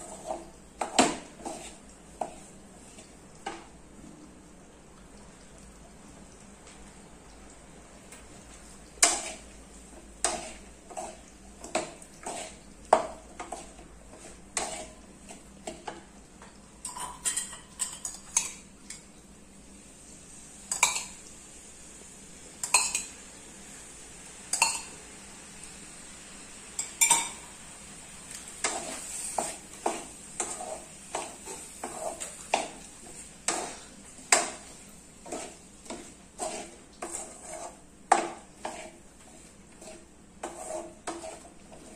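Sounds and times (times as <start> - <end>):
wooden spatula scraping metal pan: 0.0 - 3.1, 10.2 - 15.9, 28.6 - 41.9.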